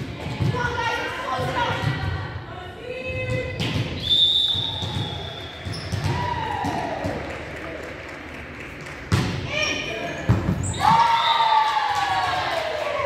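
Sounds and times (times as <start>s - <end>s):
basketball bouncing on court: 4.6s - 7.2s.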